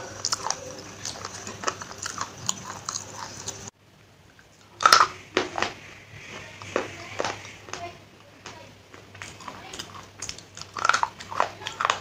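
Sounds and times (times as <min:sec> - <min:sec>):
crunchy biting and chewing: 0:00.0 - 0:03.7, 0:09.2 - 0:12.0.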